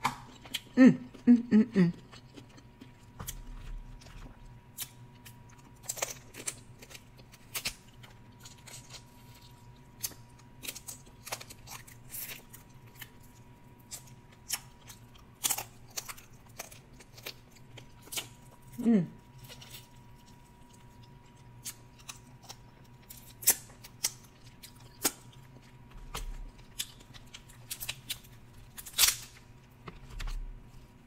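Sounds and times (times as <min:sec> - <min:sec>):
mouth chewing and smacking: 0:00.0 - 0:31.0
crab shell crackling: 0:19.3 - 0:29.8.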